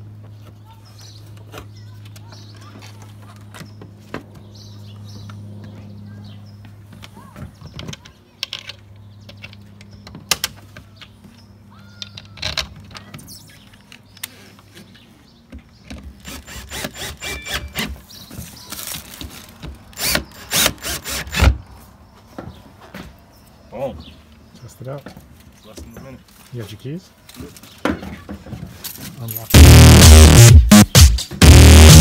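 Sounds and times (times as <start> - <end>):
cordless drill bursts: 16.2 - 18.0, 20.0 - 21.5.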